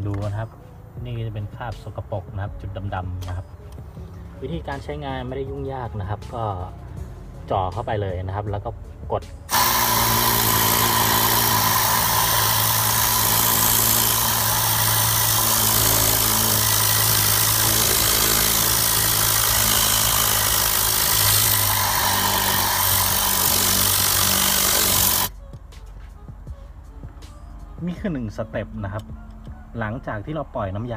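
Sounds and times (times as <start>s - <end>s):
air cleaning gun hissing: 9.5s - 25.3s.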